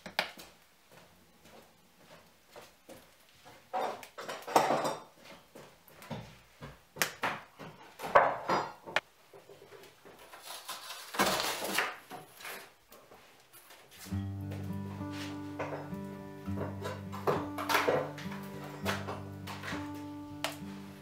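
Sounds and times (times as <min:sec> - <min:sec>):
footsteps on wooden boards: 0:00.3 - 0:03.7, 0:13.1 - 0:20.8
background music: 0:14.1 - 0:21.0.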